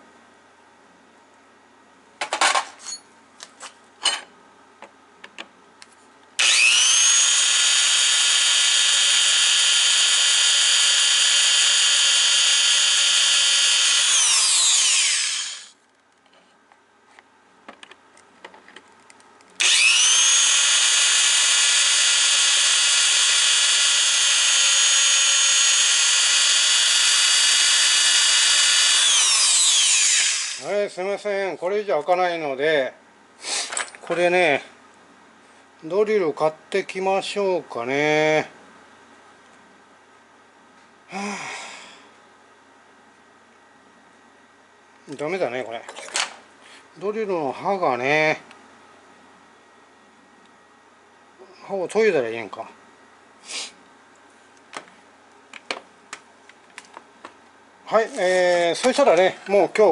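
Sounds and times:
electric drill on steel plate: 6.4s - 15.8s, 19.6s - 30.7s.

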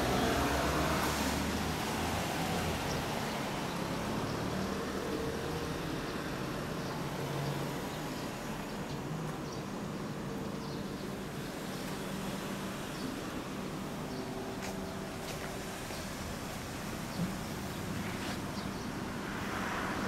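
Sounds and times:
low hum of road traffic: 0.0s - 20.0s
vehicle passing: 12.2s - 20.0s.

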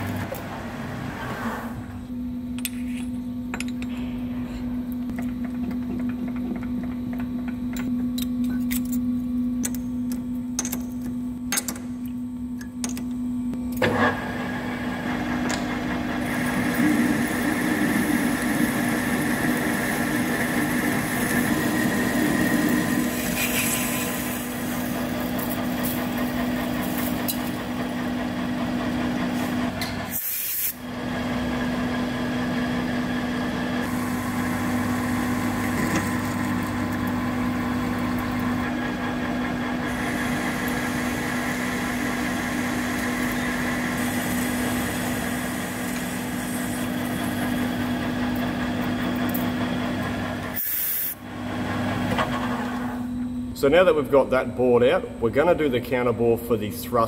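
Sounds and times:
metal lathe humming: 14.2s - 30.1s, 30.9s - 50.6s.

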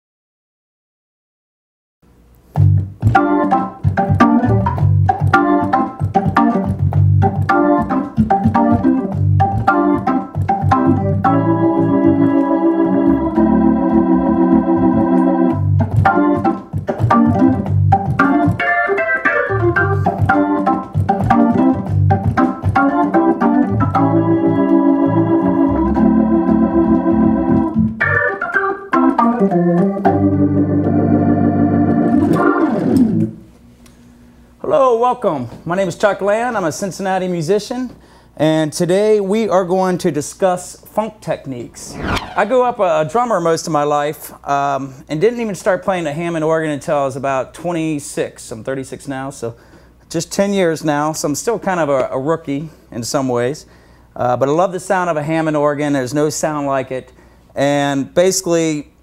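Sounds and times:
organ playing funk groove: 2.6s - 33.3s.

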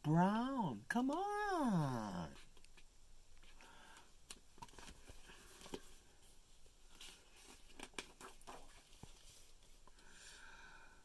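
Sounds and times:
book page rustling: 4.3s - 9.9s.

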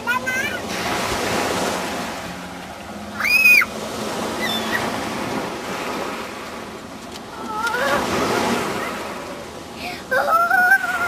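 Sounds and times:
small waves breaking: 0.0s - 11.0s
child squealing: 3.2s - 3.7s, 4.4s - 4.8s, 7.5s - 8.1s.

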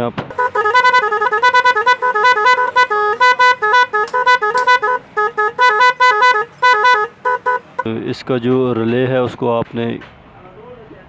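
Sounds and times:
electronic horn beeping tune: 0.3s - 7.9s.

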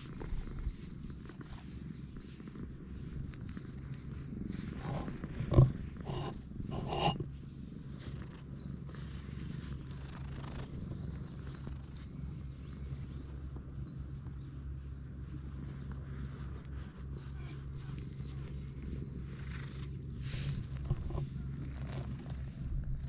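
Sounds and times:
cat purring: 0.0s - 23.0s
rustling of fur and clothing: 0.0s - 23.0s.

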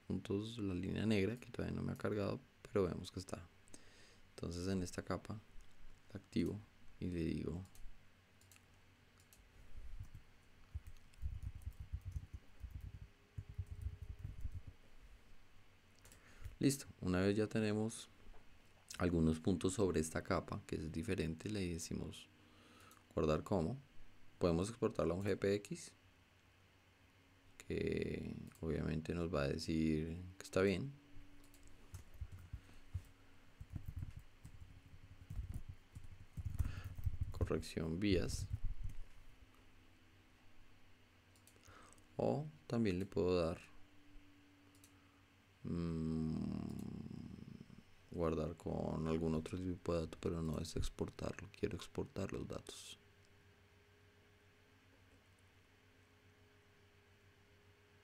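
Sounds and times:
typing on computer keyboard: 10.0s - 14.7s, 33.6s - 37.4s.

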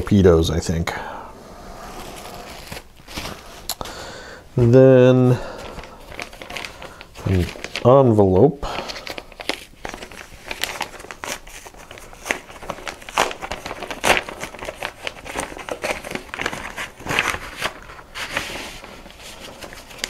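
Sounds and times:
paper crinkling and rustling: 1.8s - 3.9s, 5.3s - 20.0s.

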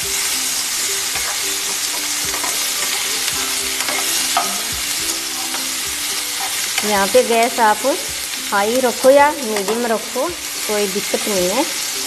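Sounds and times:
onions sizzling in hot oil: 0.0s - 12.0s
metal spatula scraping pan: 1.1s - 4.7s.

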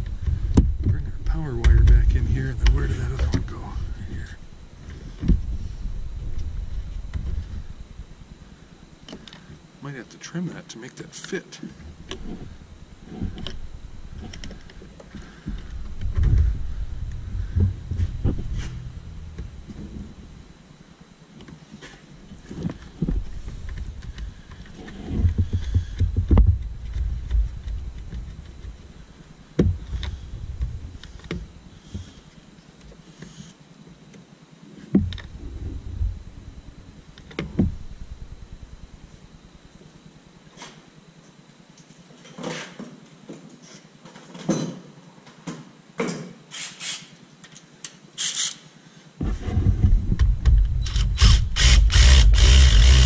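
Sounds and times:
handling noise rumble: 0.0s - 9.0s, 11.8s - 20.9s, 35.1s - 39.8s
ratchet wrench clicking: 48.2s - 48.6s, 50.9s - 53.0s.

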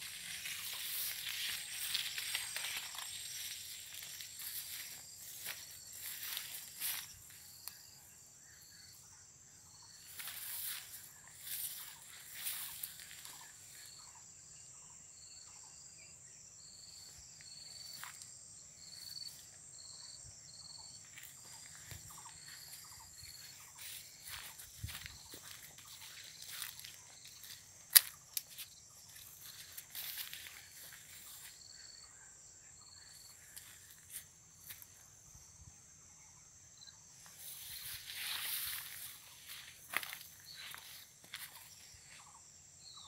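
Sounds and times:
footsteps: 0.0s - 7.4s, 10.1s - 13.5s, 21.0s - 31.6s, 37.2s - 42.4s
plants rustling: 0.0s - 7.4s, 21.1s - 31.5s, 37.5s - 41.7s
high insect drone: 0.0s - 43.0s.

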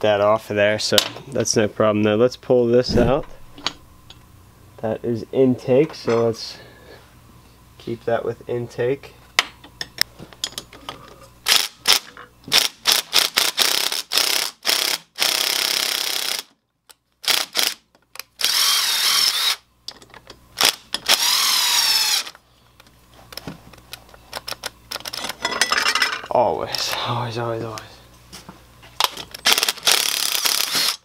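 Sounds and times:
impact driver bursts: 18.4s - 19.6s, 20.6s - 22.3s, 29.4s - 31.0s.

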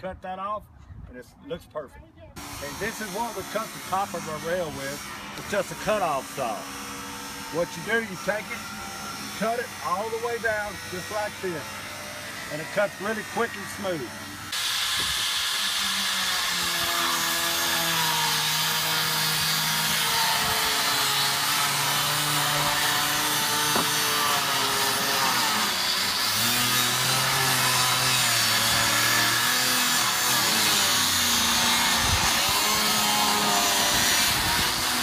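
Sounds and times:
cutoff tool cutting vinyl: 22.9s - 25.3s.

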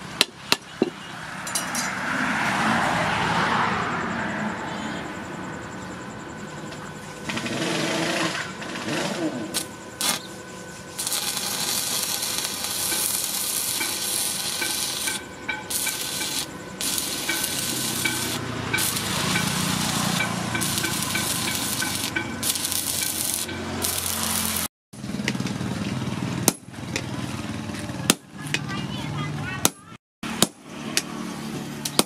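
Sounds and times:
welding arc crackling: 7.3s - 24.7s.

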